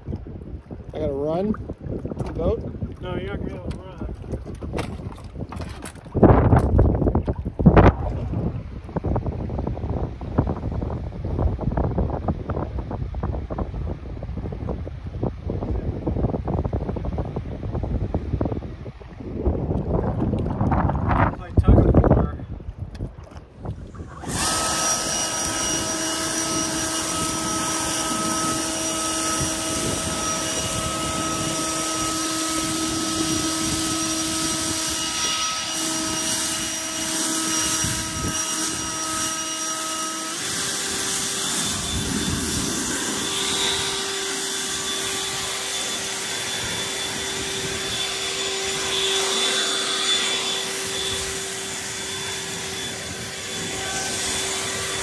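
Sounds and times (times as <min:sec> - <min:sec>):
motor humming: 0:23.6 - 0:55.0.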